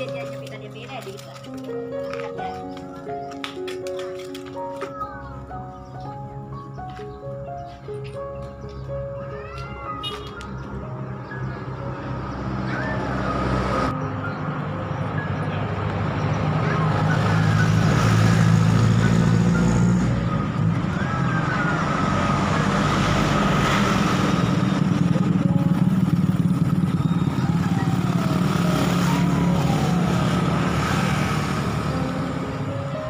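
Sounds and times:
motor scooter riding: 0:16.6 - 0:33.0.

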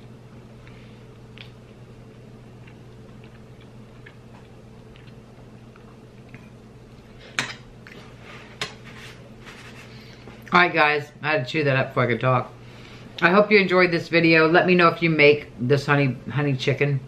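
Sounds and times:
person chewing food: 0:00.0 - 0:08.2
steady low hum: 0:00.0 - 0:17.0.

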